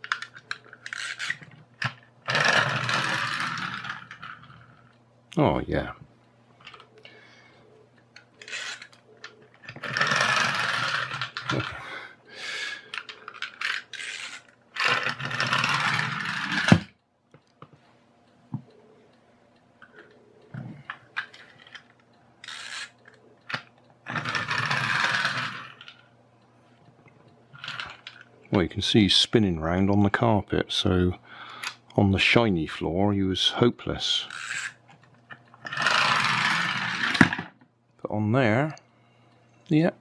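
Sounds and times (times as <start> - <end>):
clockwork toy buzzing: 0.0 - 4.9, 8.4 - 16.9, 22.4 - 26.0, 34.2 - 34.8, 35.6 - 37.5.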